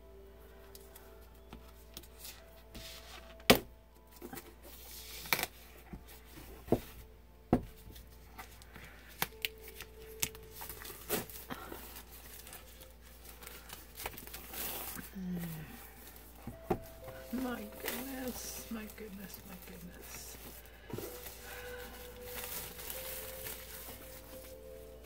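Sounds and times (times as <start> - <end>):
plastic wrap crinkling: 8.2 - 25.0.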